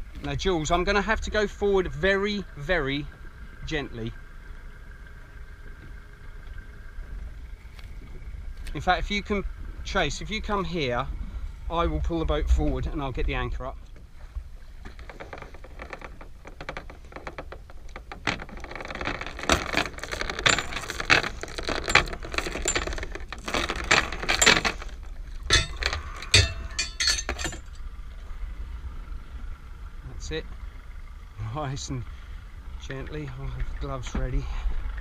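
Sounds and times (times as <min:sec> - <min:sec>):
anchor chain clinking and rattling: 0:14.8 - 0:27.9.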